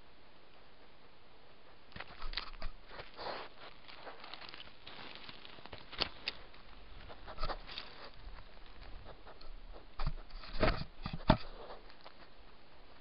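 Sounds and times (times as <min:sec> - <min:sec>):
fur scraping against camera: 0:02.0 - 0:09.4.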